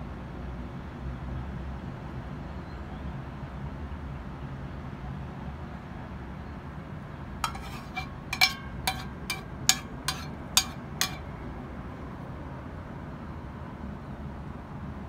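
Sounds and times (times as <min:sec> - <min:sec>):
metal spoon clinking on plastic: 0:07.4 - 0:11.3.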